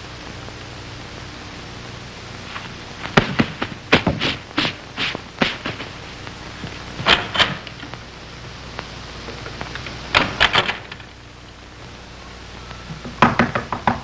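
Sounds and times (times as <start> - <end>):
old film soundtrack hiss: 0.0 - 14.0
knocking on wooden door: 13.1 - 14.0.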